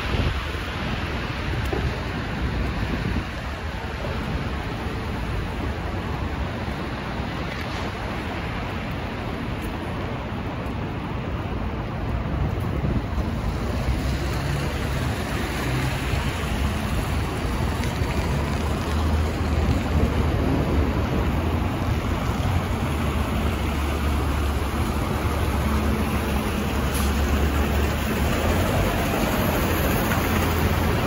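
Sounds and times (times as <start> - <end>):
bus engine drone: 0.0 - 31.0
tyres hissing through slush: 25.6 - 31.0.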